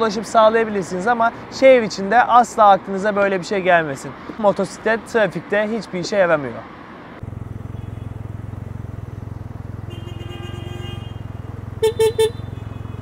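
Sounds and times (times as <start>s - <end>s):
motorcycle engine running: 7.2s - 13.0s
vehicle horn: 7.6s - 8.4s, 9.8s - 13.0s.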